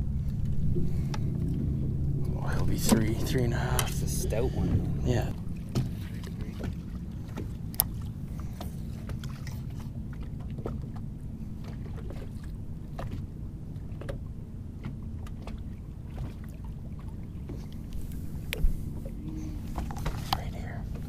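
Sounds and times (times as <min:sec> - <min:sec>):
boat engine rumble: 0:00.0 - 0:21.0
waves against the hull: 0:00.0 - 0:21.0
wind: 0:00.0 - 0:21.0
light clicks and taps: 0:05.7 - 0:09.3.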